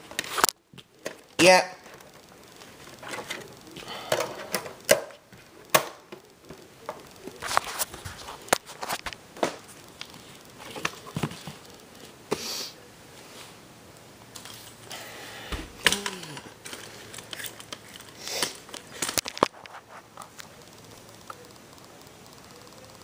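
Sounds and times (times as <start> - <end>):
camera handling noise: 16.7 - 20.5.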